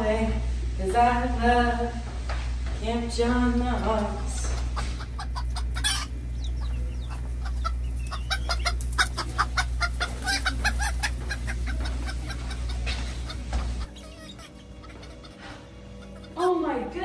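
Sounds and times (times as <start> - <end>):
steady low hum: 0.0 - 17.0
chicken clucking: 3.5 - 16.6.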